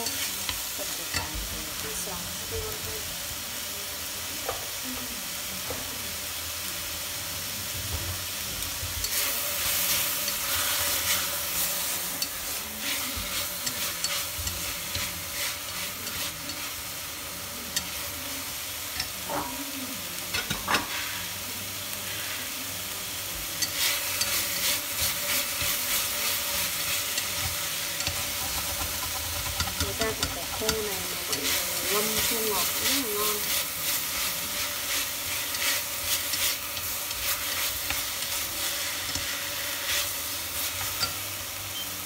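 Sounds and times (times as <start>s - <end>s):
food sizzling in a pot: 0.0s - 42.0s
chopsticks tapping a pot: 12.2s - 16.7s, 23.6s - 40.1s, 40.7s - 41.3s.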